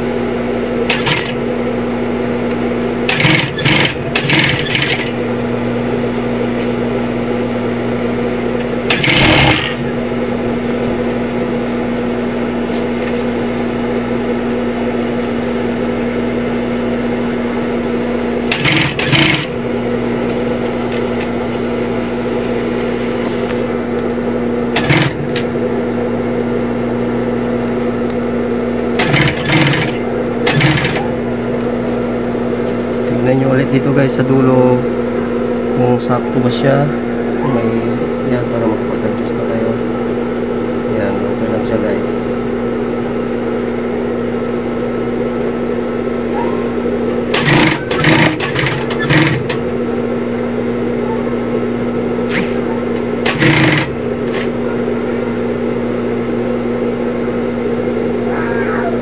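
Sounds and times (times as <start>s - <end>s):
sewing machine motor hum: 0.0s - 34.8s, 45.4s - 59.0s
rattling stitching: 0.9s - 1.4s, 3.1s - 5.2s, 8.9s - 9.8s, 18.5s - 19.5s, 24.8s - 25.2s, 29.0s - 31.0s, 47.3s - 49.6s, 53.2s - 54.5s.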